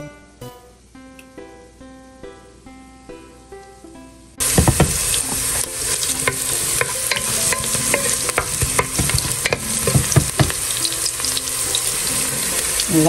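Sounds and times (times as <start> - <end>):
wooden spatula scraping a pan: 4.4 - 11.3
onions sizzling in hot oil: 4.4 - 13.0.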